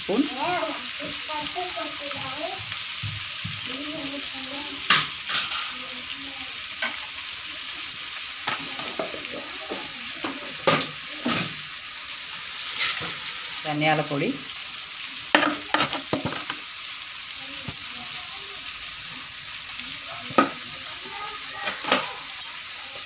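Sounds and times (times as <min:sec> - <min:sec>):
meat sizzling in hot oil: 0:00.0 - 0:23.0
ladle clinking in a pot: 0:06.8 - 0:07.3.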